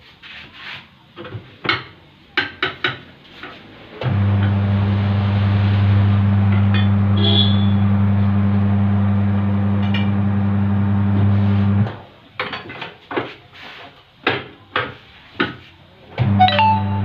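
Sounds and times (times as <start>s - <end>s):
electric motor humming: 4.0s - 11.9s.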